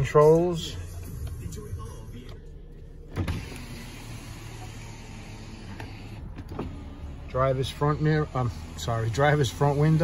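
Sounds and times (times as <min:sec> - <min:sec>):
power window motor running: 0:03.0 - 0:10.0.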